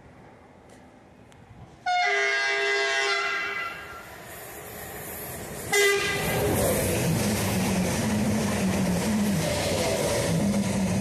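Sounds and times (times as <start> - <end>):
train horn: 1.8 - 4.0, 5.7 - 6.4.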